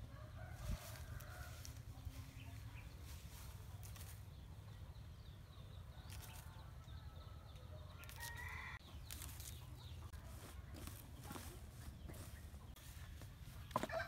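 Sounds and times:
chickens clucking: 7.5s - 14.0s.

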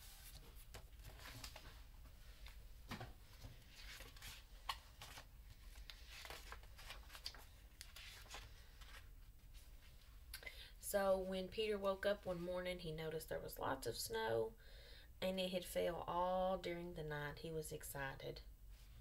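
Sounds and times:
book pages turning: 0.0s - 1.8s, 3.3s - 10.0s.

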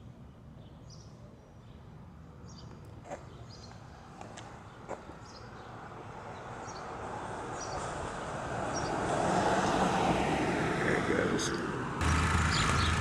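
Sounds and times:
birds chirping: 0.0s - 9.8s, 11.2s - 13.0s
passing vehicle: 3.0s - 13.0s.

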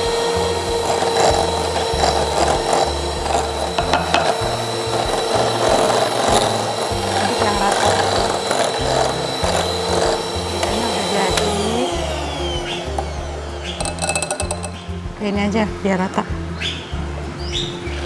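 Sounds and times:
electric hand mixer whirring: 0.0s - 15.0s
background music with bass: 0.0s - 18.0s.

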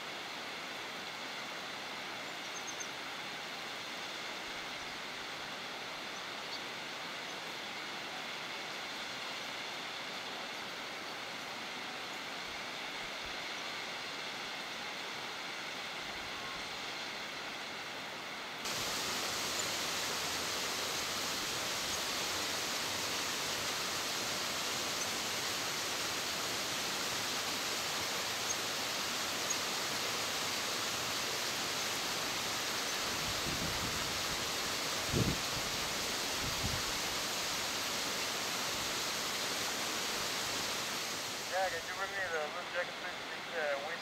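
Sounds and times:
waterfall rushing: 18.6s - 44.0s.

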